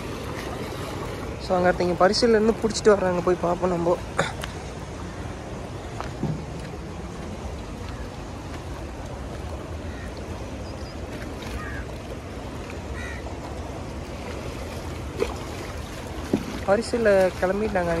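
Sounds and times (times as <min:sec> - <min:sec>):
river flowing: 0:00.0 - 0:18.0
faint distant calls: 0:09.6 - 0:13.6.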